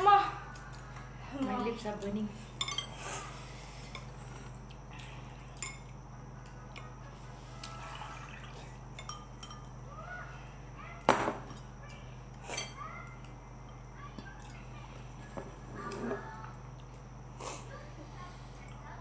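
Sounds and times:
tableware clinking: 2.6 - 3.0, 8.9 - 9.8.

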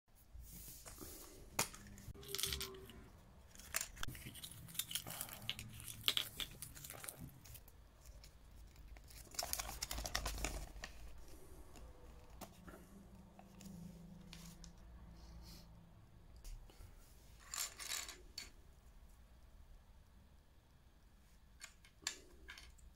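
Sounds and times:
plastic and paper crinkling: 0.7 - 14.7
paper leaflet rustling: 3.5 - 11.5.

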